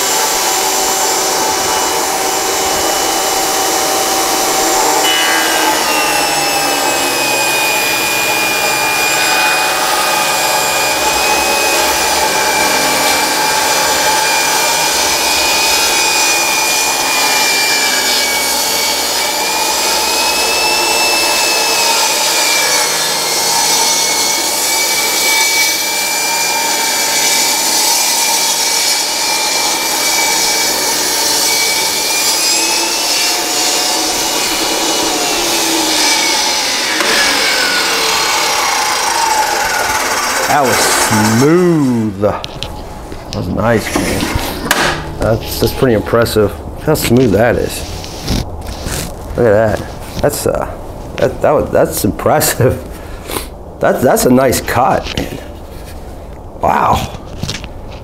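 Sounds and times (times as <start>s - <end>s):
table saw cutting wood: 0.0s - 50.6s.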